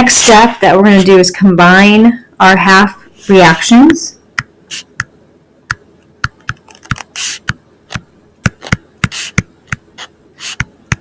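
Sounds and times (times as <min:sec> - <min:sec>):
stylus scratching across surface: 0:03.2 - 0:03.9, 0:04.7 - 0:05.0, 0:06.4 - 0:11.0
stylus tapping on tablet: 0:05.7 - 0:11.0.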